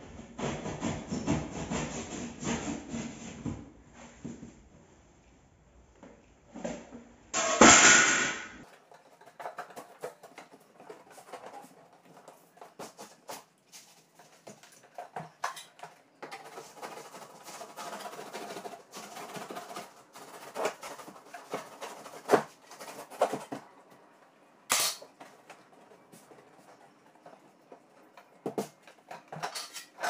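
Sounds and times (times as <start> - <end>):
scraping: 8.6 - 30.0.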